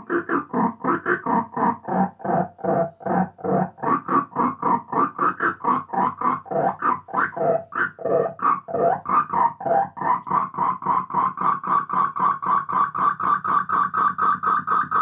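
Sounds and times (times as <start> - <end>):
electronic pulsing tone with delay: 0.0 - 15.0.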